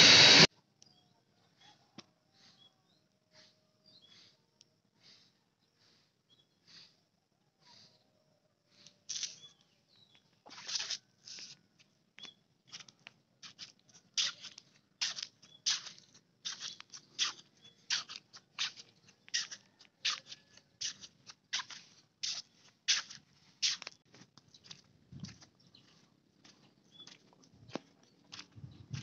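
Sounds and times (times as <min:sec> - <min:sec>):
footsteps crunching on gravel: 0:10.4 - 0:11.6, 0:12.2 - 0:29.0.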